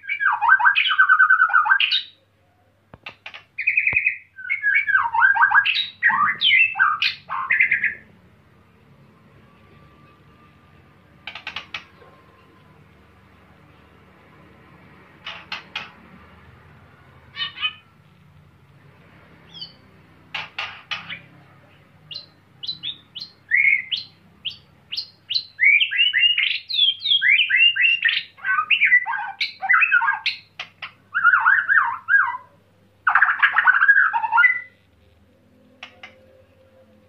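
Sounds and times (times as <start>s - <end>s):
bird singing: 0.0s - 2.3s, 3.2s - 8.2s, 9.0s - 12.8s, 17.3s - 18.0s, 19.5s - 34.8s.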